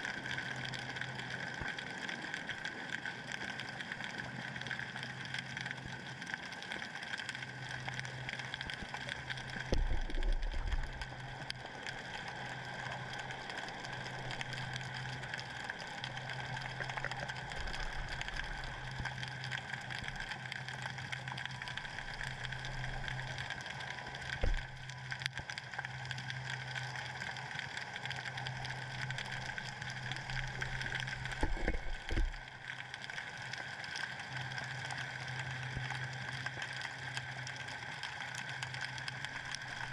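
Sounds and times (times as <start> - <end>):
low hum: 7.4 - 33.5.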